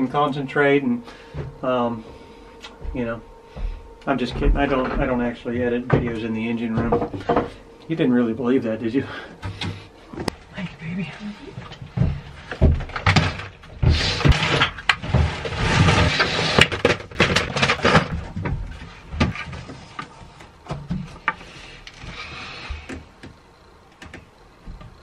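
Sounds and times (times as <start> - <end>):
plastic boxes clattering on shelf: 12.0 - 20.1.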